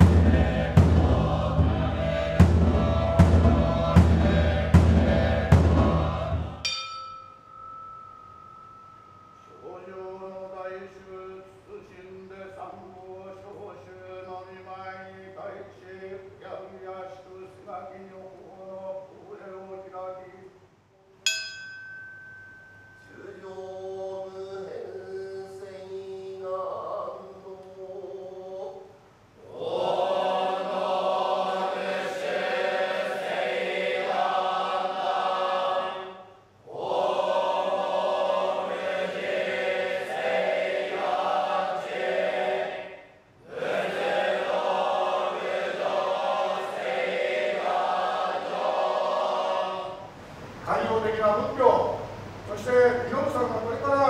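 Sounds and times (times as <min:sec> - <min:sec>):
monks chanting together: 0:00.0 - 0:06.7, 0:29.4 - 0:50.1.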